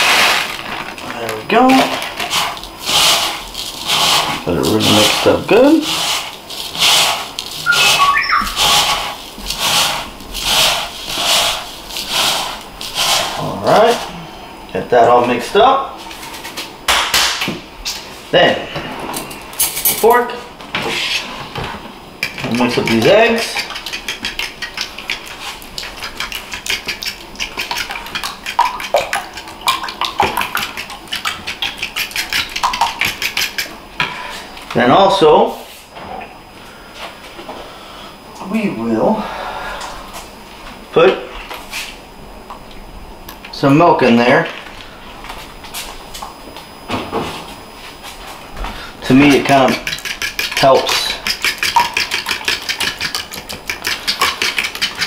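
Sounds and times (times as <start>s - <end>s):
gritty rustle of crumbs: 0.0s - 7.6s
fork beating eggs in bowl: 1.7s - 14.1s, 22.2s - 34.3s, 49.0s - 55.0s
whistle-like squeak: 7.6s - 8.7s.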